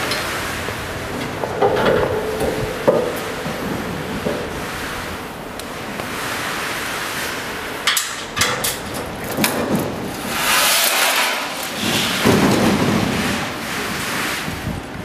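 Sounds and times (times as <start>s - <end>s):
sharp clicks and knocks: 0.0s - 4.6s, 7.8s - 13.1s
rushing scraping noises: 0.0s - 15.0s.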